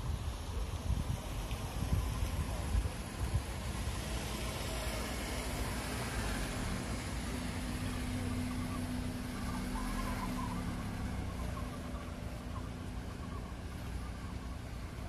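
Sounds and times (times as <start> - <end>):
car engines running: 0.0 - 15.0.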